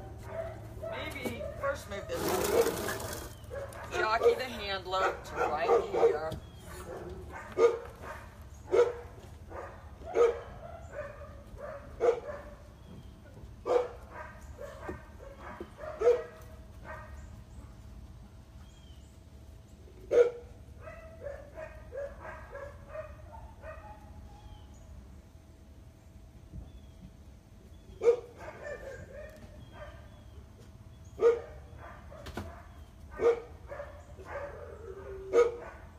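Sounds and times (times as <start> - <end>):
dog barking: 0.0 - 2.9, 3.5 - 12.6, 13.6 - 17.2, 20.1 - 24.2, 28.0 - 30.2, 31.2 - 35.9.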